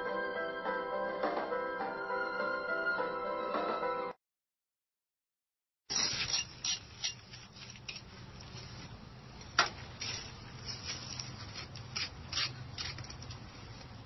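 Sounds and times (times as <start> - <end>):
hand tool scraping stone joints: 5.9 - 8.1, 11.6 - 13.4.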